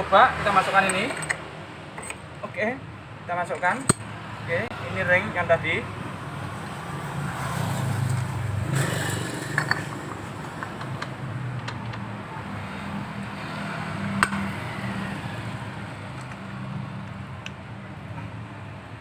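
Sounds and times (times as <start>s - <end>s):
light metallic clicks and clinks: 0.8s - 1.4s, 2.0s - 2.3s, 3.4s - 4.1s.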